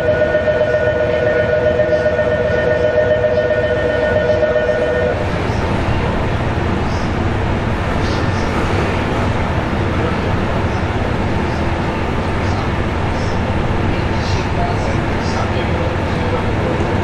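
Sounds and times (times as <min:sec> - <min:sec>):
two-tone electronic departure bell: 0:00.0 - 0:05.2
train low hum: 0:00.0 - 0:17.0.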